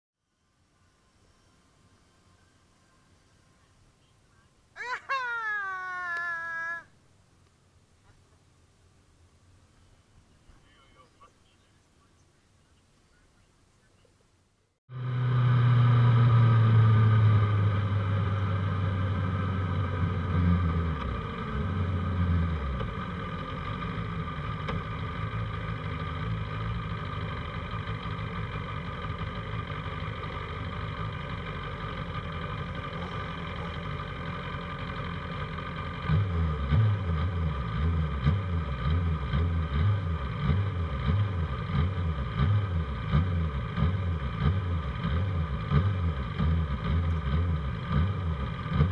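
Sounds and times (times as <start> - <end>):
race motorcycle engines running: 14.9 - 48.9.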